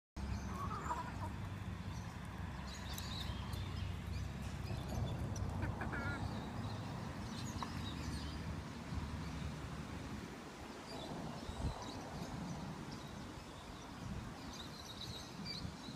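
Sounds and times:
chickens clucking: 0.4s - 1.5s, 5.1s - 6.4s.

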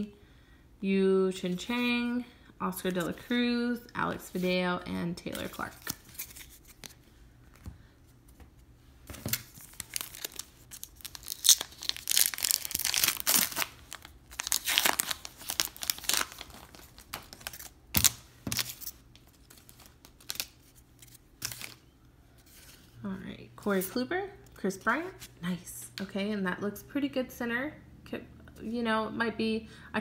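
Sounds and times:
foil wrapper tearing and crinkling: 9.3s - 21.8s.

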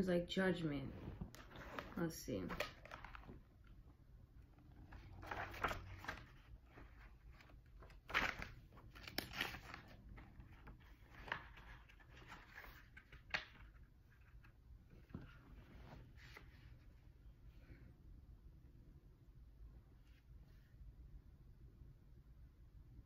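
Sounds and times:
paper pages rustling: 1.0s - 3.4s, 4.8s - 16.7s.

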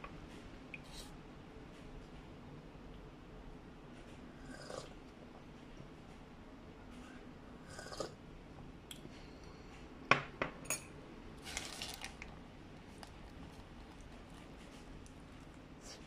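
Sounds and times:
paper wrapper crinkling: 11.4s - 14.0s.

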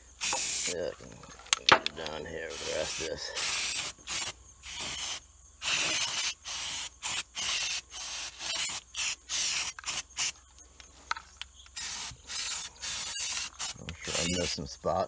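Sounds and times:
aerosol can spraying: 0.2s - 0.8s, 2.5s - 10.4s, 11.8s - 14.5s.

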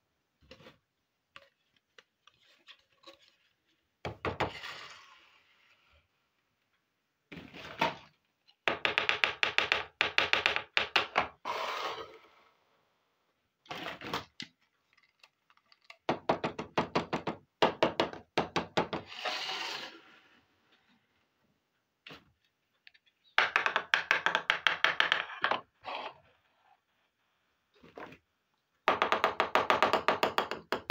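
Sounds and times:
plastic sliding on table: 19.0s - 20.6s.

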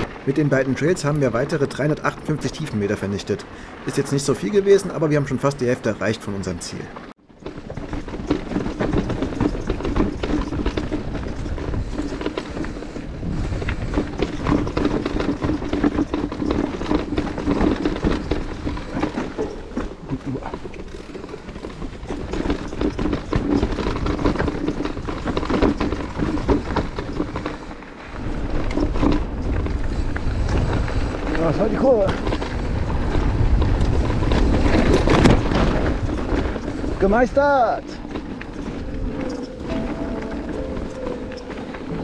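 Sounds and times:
bike rattling over bumps: 0.0s - 42.0s
tyres on dirt: 0.0s - 42.0s
wind rushing over microphone: 7.6s - 20.6s, 21.5s - 42.0s.

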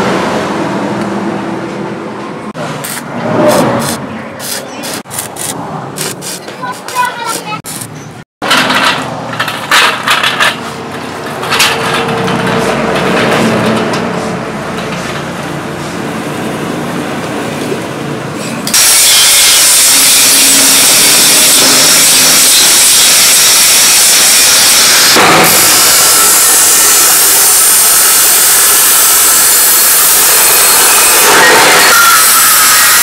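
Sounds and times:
angle grinder grinding steel: 18.7s - 33.0s.

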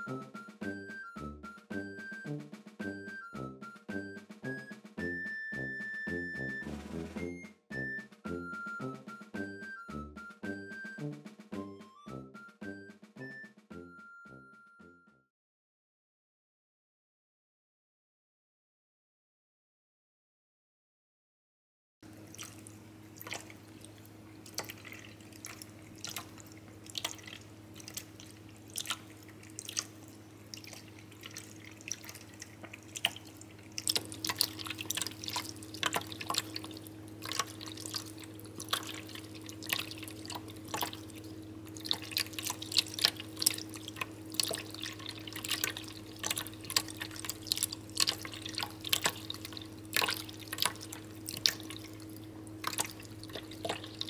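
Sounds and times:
cat lapping water: 22.1s - 54.0s
fountain pump hum: 22.1s - 54.0s
running water: 22.1s - 54.0s.

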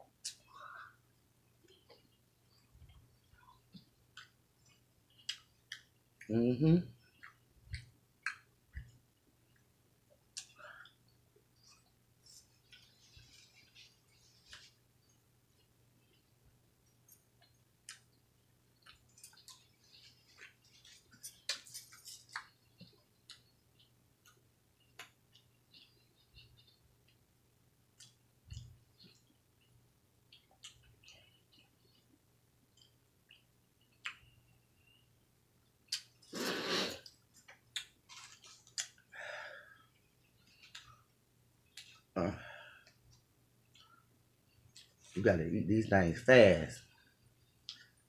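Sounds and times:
crackly rustling: 11.6s - 27.2s, 37.0s - 39.1s
voiced mouth sound: 36.3s - 37.1s.

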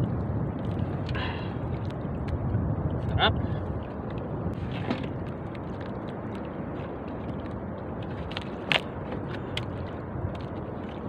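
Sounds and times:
light wind: 0.0s - 11.0s
open water noise: 0.0s - 11.0s.

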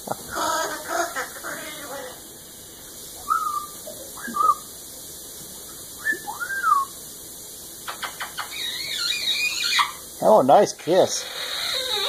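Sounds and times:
parrot whistling: 3.2s - 4.7s, 6.0s - 6.9s, 7.9s - 10.0s
parrot clicks: 7.8s - 8.6s.

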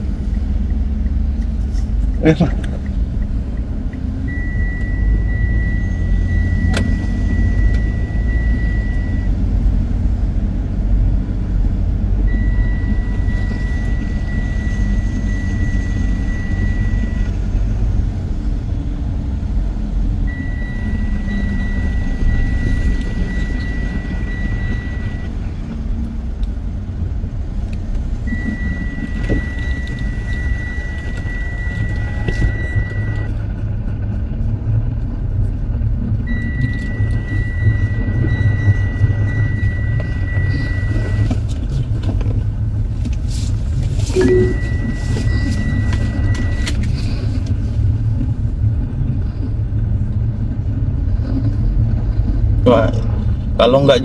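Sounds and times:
vehicle engine and road noise: 0.0s - 54.0s
high electronic warning tone: 4.3s - 9.4s, 12.3s - 17.4s, 20.3s - 25.4s, 28.3s - 33.3s, 36.3s - 41.4s, 44.1s - 46.8s.

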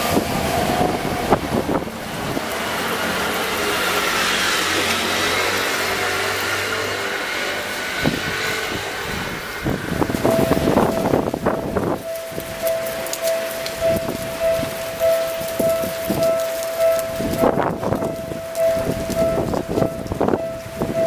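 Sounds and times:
vehicle passing close by: 0.0s - 21.0s
wind buffeting microphone: 0.0s - 21.0s.

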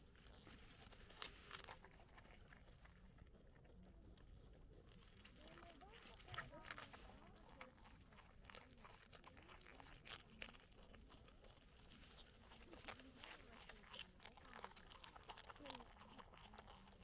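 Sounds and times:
animal chewing crunchy leaf: 0.0s - 17.0s.

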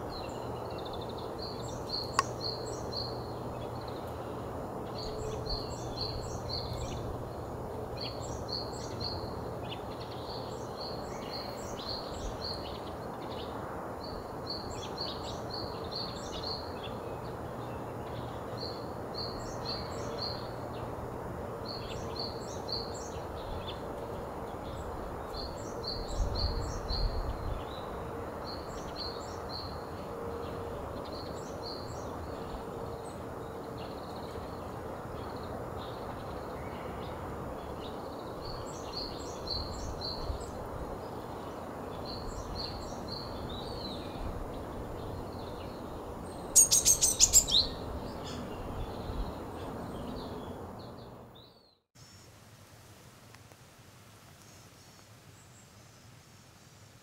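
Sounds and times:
bird singing high notes: 46.6s - 47.8s.

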